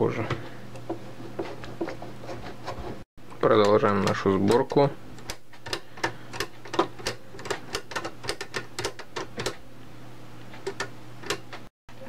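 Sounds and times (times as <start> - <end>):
small parts clicking and tapping: 3.2 - 9.6, 10.5 - 11.7.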